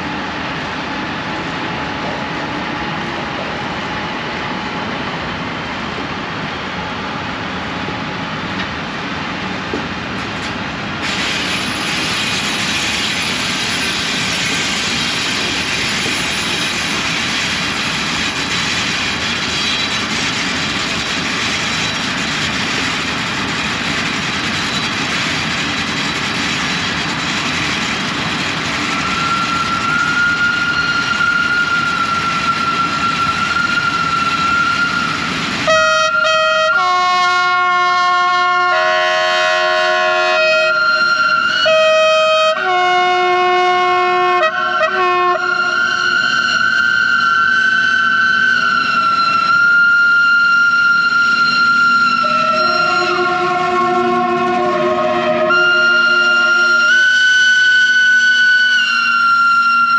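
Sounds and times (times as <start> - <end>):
train wheels rumbling on rail: 0.0 - 59.9
steady high tone: 44.5 - 59.9
held tones changing pitch: 44.6 - 59.6.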